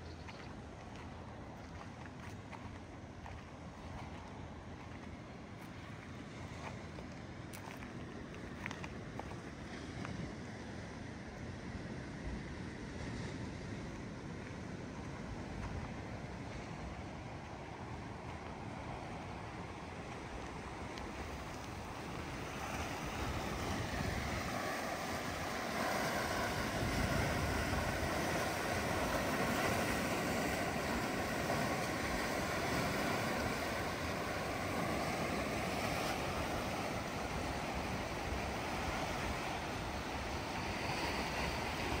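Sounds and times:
wind buffeting microphone: 13.3s - 42.0s
sea waves breaking on rocks: 14.4s - 42.0s.

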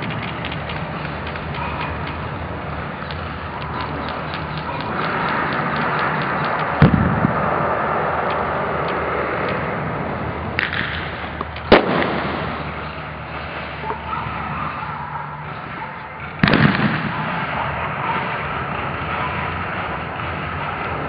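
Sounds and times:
steady rushing noise: 0.0s - 21.0s
loud sharp bangs: 4.4s - 7.7s, 10.6s - 13.7s, 16.4s - 18.8s
small crack: 10.6s - 12.2s.

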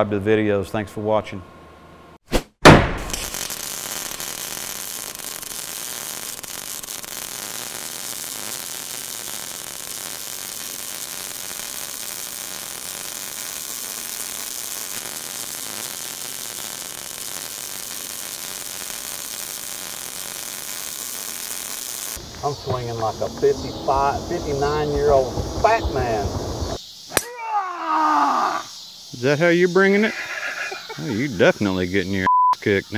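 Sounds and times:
welding arc hiss and crackle: 3.1s - 27.3s.

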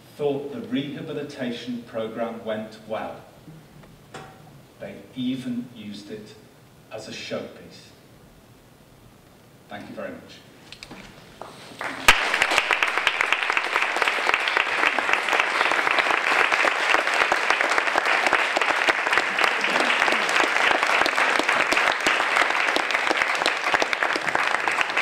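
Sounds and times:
audience applauding: 11.7s - 25.0s.

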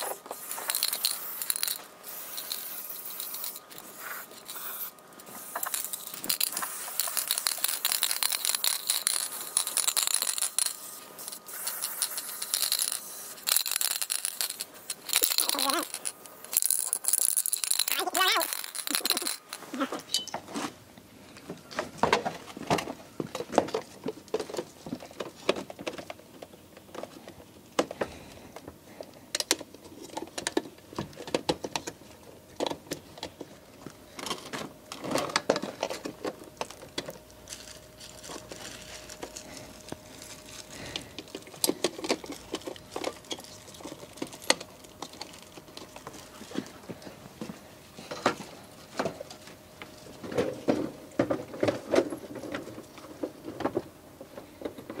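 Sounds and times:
clicks and knocks of plastic parts: 21.4s - 49.4s.

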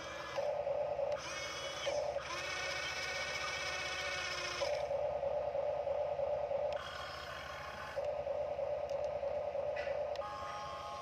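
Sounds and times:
electric motors whining: 0.0s - 11.0s.

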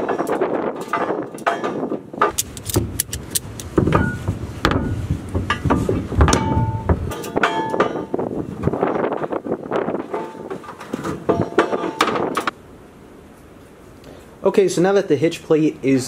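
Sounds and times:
ratchet strap clicking: 2.3s - 3.8s
metallic ringing tones: 6.3s - 8.2s.

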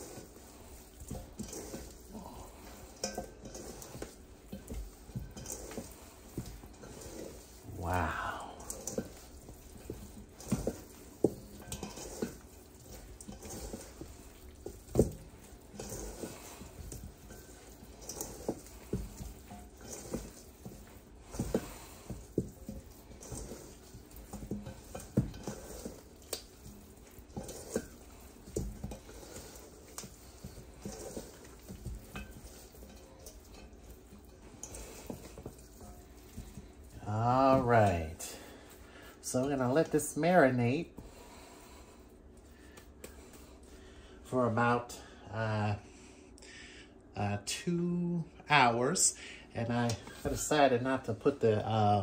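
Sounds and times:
moist squishing: 0.0s - 40.0s.

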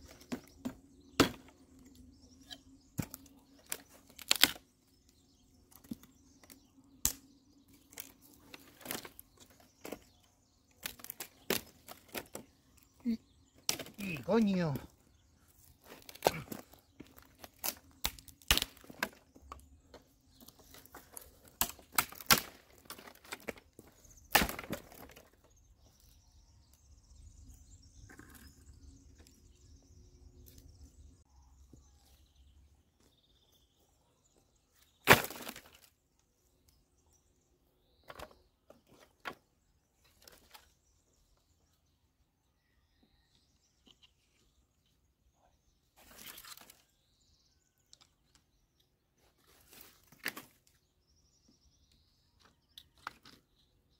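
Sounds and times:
branches snapping: 2.4s - 4.7s, 5.8s - 10.1s, 10.7s - 12.5s, 13.6s - 14.9s, 15.6s - 19.6s, 20.4s - 25.4s, 35.0s - 35.9s, 46.0s - 46.8s, 49.6s - 50.8s
logs knocking together: 20.5s - 25.4s.

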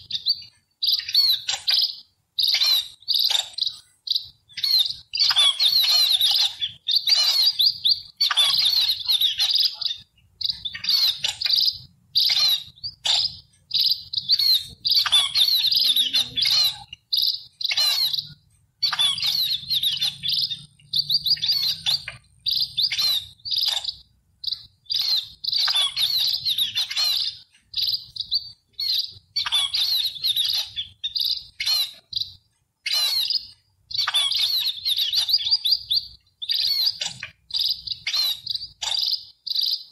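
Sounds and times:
sparrows chirping: 0.0s - 39.9s.

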